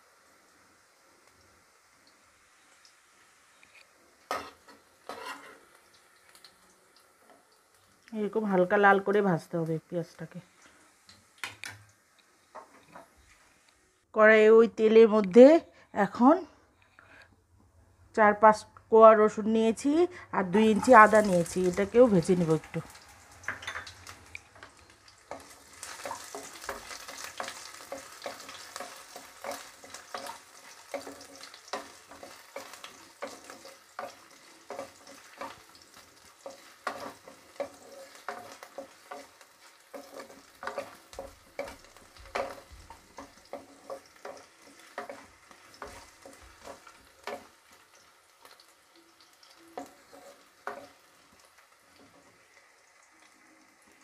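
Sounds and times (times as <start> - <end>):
garlic sizzling in hot oil: 0.0 - 16.4, 18.2 - 54.0
wooden spatula stirring in pan: 3.6 - 7.5, 20.6 - 52.6.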